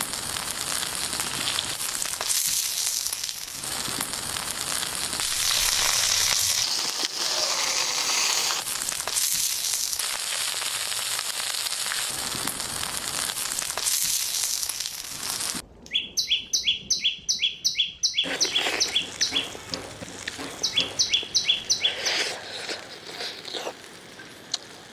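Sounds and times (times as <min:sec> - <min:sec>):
food sizzling on hot stone: 0:00.0 - 0:15.6, 0:18.2 - 0:24.9
high falling chirps: 0:15.9 - 0:19.6, 0:20.4 - 0:22.4.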